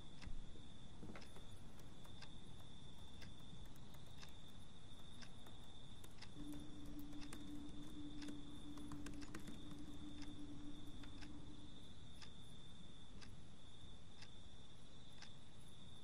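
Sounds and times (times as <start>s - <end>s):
clock ticking: 0.0s - 14.5s
low hum: 6.0s - 13.6s
thin high whine: 6.2s - 13.2s.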